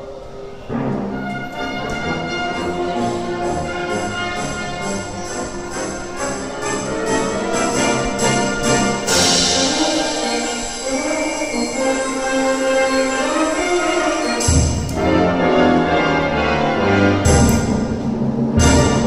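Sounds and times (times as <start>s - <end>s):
wind band playing chords: 0.0s - 19.0s
percussion crash: 3.5s - 11.6s, 17.0s - 19.0s.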